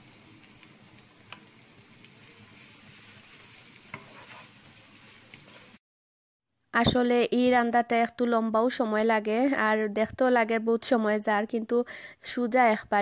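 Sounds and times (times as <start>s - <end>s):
onions sizzling in a pan: 0.0s - 5.8s.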